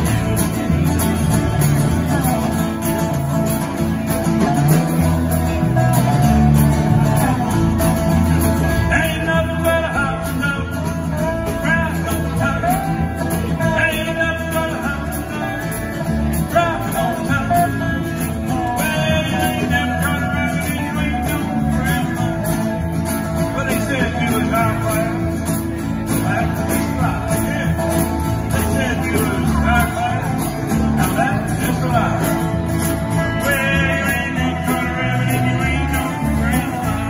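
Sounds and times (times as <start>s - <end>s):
strummed acoustic guitars: 0.0s - 37.0s
upright bass: 0.0s - 37.0s.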